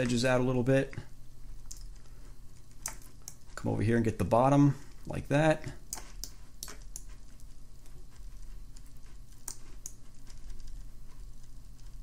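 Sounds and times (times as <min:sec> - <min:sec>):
steady low hum: 0:00.0 - 0:12.0
computer mouse clicks: 0:01.6 - 0:03.5, 0:05.9 - 0:07.6, 0:08.2 - 0:12.0.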